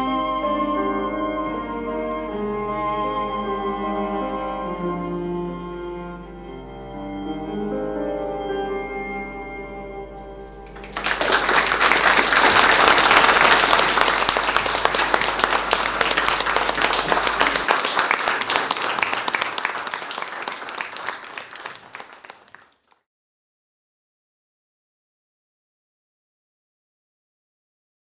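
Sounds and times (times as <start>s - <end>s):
audience applauding: 10.7s - 23.0s.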